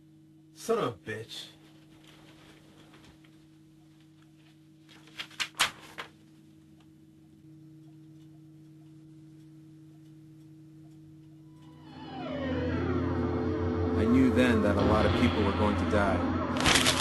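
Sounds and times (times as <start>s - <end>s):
low electrical hum: 0.0s - 17.0s
paper crackling: 4.8s - 6.2s, 16.6s - 17.0s.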